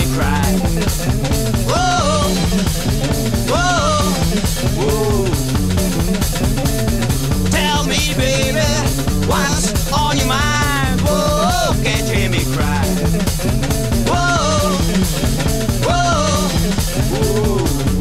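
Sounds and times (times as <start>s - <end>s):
blues-rock band playing: 0.0s - 18.0s.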